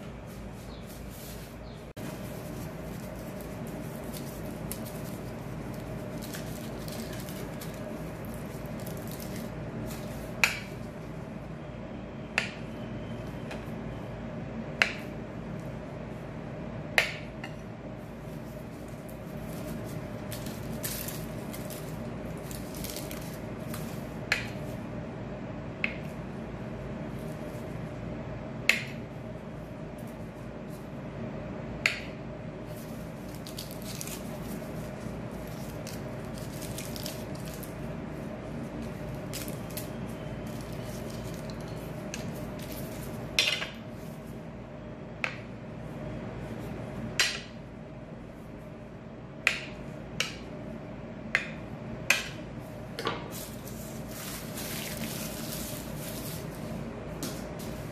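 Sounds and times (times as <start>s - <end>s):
steady hum: 0.0s - 57.9s
foil wrappers rustling: 0.2s - 10.3s, 18.2s - 24.0s, 32.7s - 43.3s, 53.3s - 57.9s.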